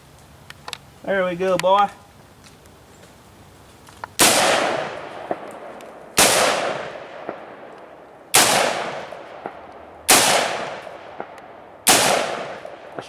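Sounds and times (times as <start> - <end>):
rifle shots with echo: 4.2 - 13.0.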